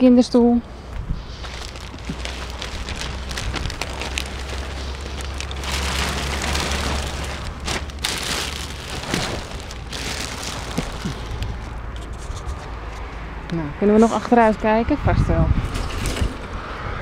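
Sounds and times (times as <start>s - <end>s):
plastic sleeve crinkling: 1.2s - 12.7s.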